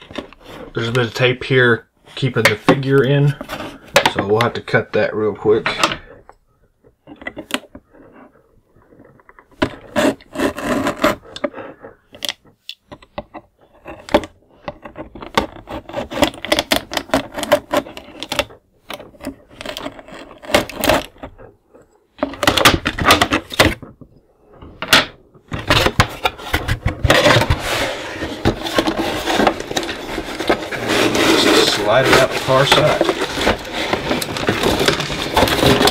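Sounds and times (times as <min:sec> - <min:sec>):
cardboard box rubbing and scraping: 0:09.7 - 0:11.4, 0:25.5 - 0:35.9.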